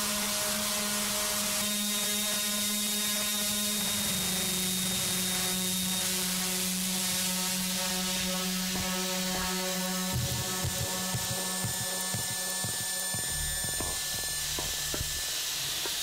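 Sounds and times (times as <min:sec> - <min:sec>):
low drone: 0:00.0 - 0:15.7
harsh noise music hiss and static: 0:00.0 - 0:16.0.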